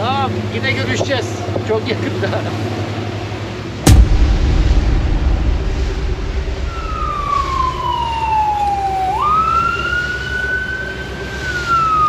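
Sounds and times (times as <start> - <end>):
low rumble: 3.9 - 8.8
siren wailing: 6.7 - 12.0.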